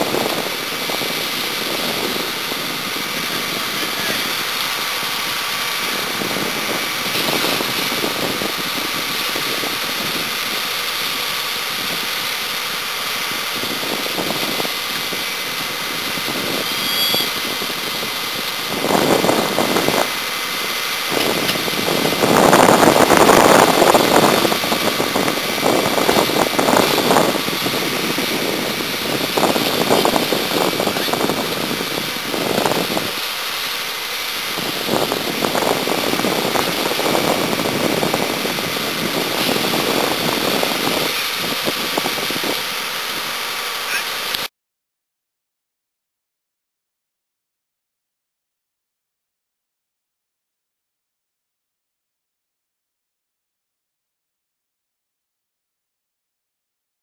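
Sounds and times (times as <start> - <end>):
fire engine motor running: 0.0 - 44.5
fire hissing and crackling: 0.0 - 44.5.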